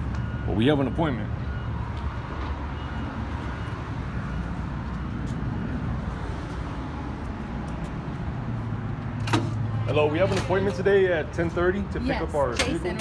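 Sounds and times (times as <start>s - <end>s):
low rumble of road traffic: 0.0s - 13.0s.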